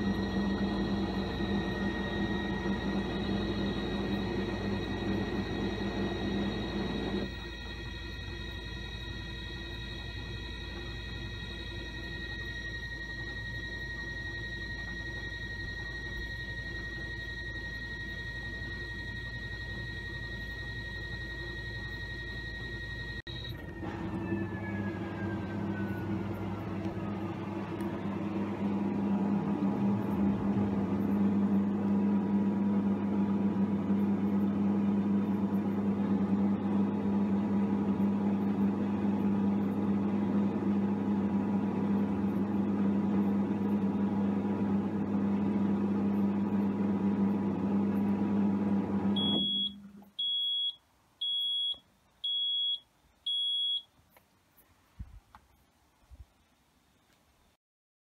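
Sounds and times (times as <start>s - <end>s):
washing machine spinning: 0.0s - 51.7s
short high beeps: 49.2s - 53.9s.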